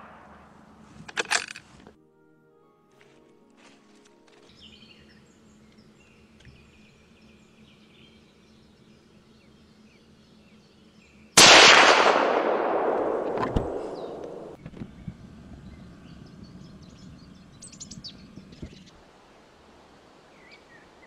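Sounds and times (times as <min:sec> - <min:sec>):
rifle shot with echo: 0:11.4 - 0:14.6.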